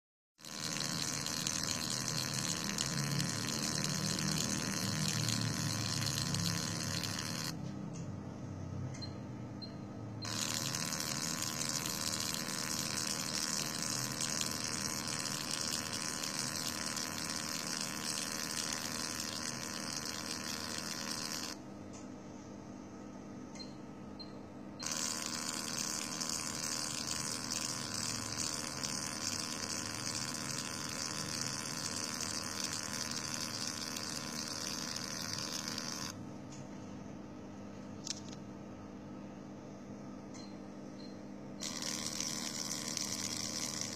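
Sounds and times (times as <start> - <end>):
laser machine high hiss: 0.4 - 7.6, 10.3 - 21.6, 24.8 - 36.2, 41.6 - 43.9.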